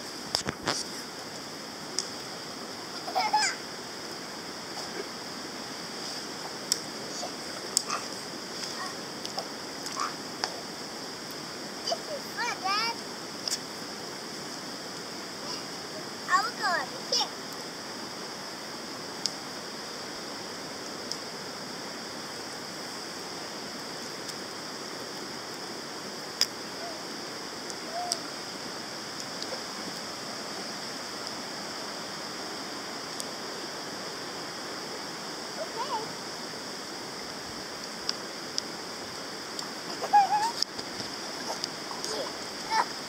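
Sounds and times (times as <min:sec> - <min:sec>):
steady rushing hiss: 0:00.0 - 0:43.0
faint clicks: 0:02.0 - 0:02.2, 0:26.4 - 0:26.6
child's high-pitched voice: 0:03.0 - 0:03.6, 0:07.1 - 0:09.0, 0:10.0 - 0:10.2, 0:11.8 - 0:13.0, 0:15.5 - 0:17.4, 0:35.6 - 0:36.1, 0:39.9 - 0:40.6, 0:42.0 - 0:42.9.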